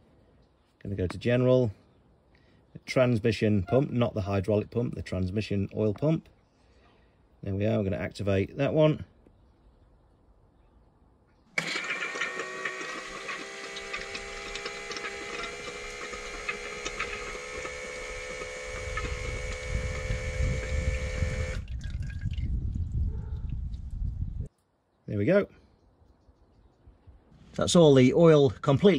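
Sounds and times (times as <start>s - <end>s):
electric oil pump humming: 11.6s - 22.4s
oil splashing out of drain: 20.9s - 22.6s.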